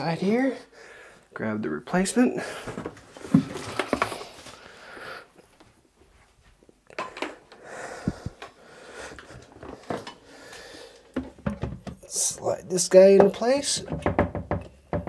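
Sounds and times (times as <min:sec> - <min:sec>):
soft rustling: 0:05.4 - 0:06.8
plastic seat knocks and clicks: 0:11.2 - 0:12.0, 0:13.8 - 0:15.0.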